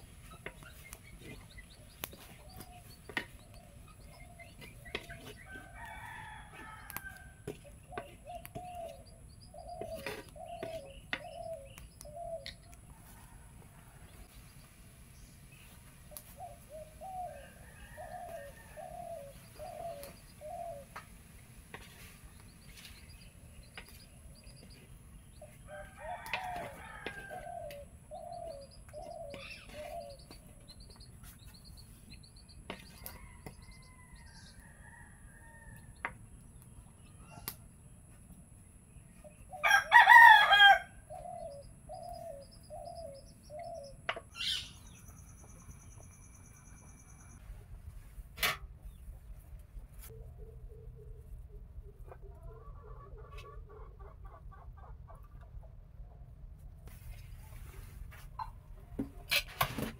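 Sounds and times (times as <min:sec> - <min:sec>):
chickens calling: 0:00.0 - 0:37.8, 0:39.1 - 0:47.4, 0:48.8 - 0:59.8
rooster crowing: 0:05.5 - 0:07.6, 0:17.2 - 0:19.9, 0:25.7 - 0:27.8, 0:33.0 - 0:35.9, 0:39.6 - 0:41.0.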